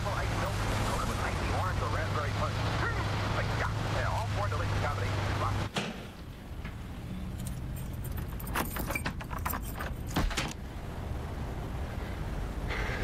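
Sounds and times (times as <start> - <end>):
door chain lock clacking: 7.4 - 10.6
keys jangling in door lock: 7.4 - 10.6.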